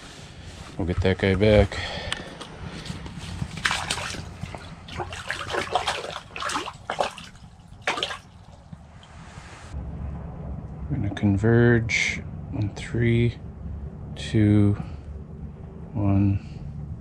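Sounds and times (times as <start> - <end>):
fish splashing water: 2.2 - 8.9.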